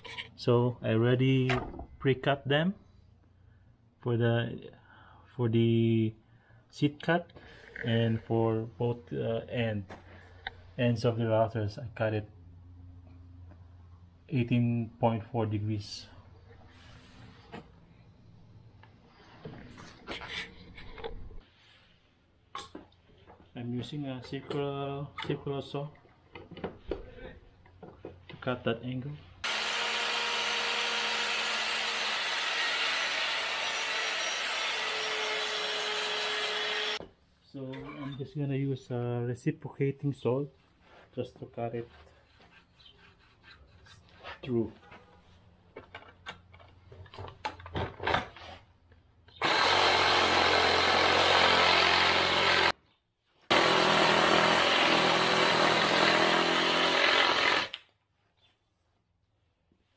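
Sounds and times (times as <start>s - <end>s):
circular saw cutting wood: 29.4s - 37.0s, 49.4s - 52.8s, 53.5s - 57.8s.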